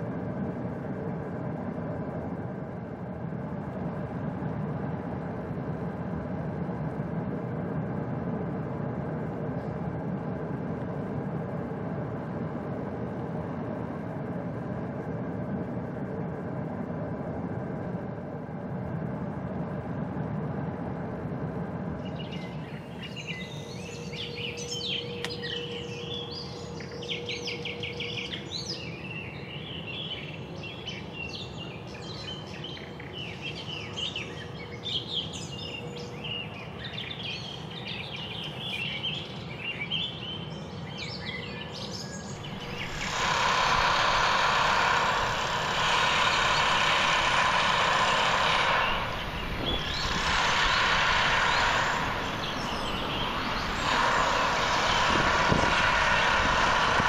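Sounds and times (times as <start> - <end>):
low outdoor hum: 0.0 - 57.0
small birds chirping: 22.0 - 57.0
rushing vehicle noise: 42.4 - 57.0.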